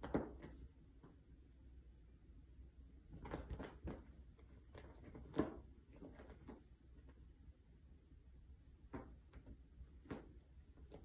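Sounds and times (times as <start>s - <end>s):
cat tussling with cat bed: 2.9s - 7.3s.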